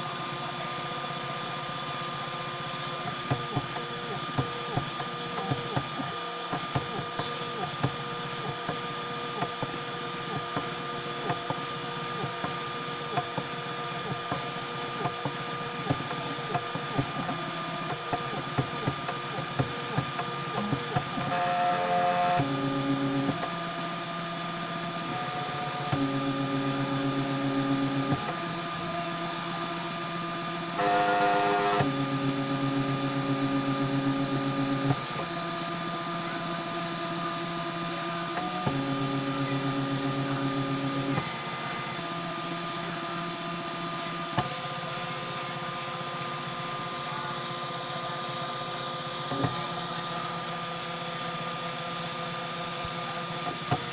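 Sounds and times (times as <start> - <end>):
constant high hum: 0.0 - 53.9
stepper motor whine: 0.0 - 53.9
printer motor rapid ticking: 3.0 - 30.0.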